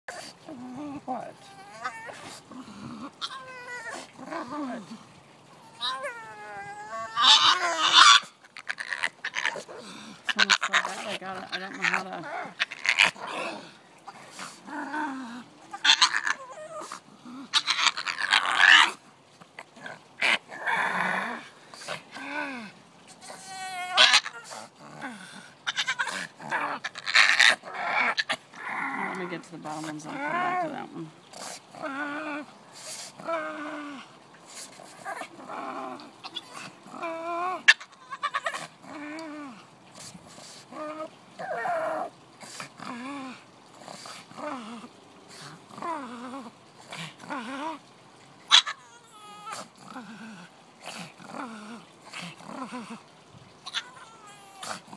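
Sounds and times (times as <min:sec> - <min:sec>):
dog moaning cries: 0:00.1 - 0:04.9, 0:05.5 - 0:19.0, 0:22.1 - 0:29.3, 0:29.9 - 0:31.0, 0:33.2 - 0:34.2, 0:34.9 - 0:39.7, 0:45.8 - 0:50.3, 0:51.2 - 0:54.9.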